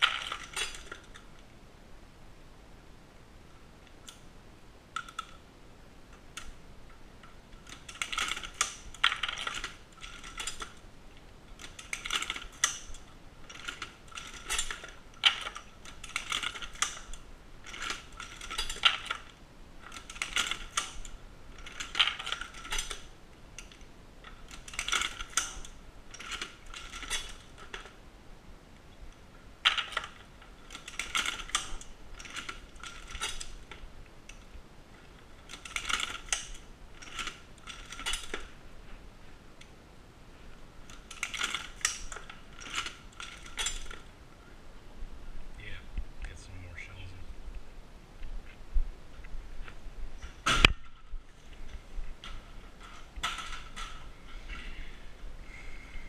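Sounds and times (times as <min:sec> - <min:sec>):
reloading press clicking and clattering: 0:00.0 - 0:01.3, 0:07.2 - 0:10.8, 0:11.5 - 0:28.0, 0:29.6 - 0:34.5, 0:35.4 - 0:38.5, 0:40.8 - 0:44.1.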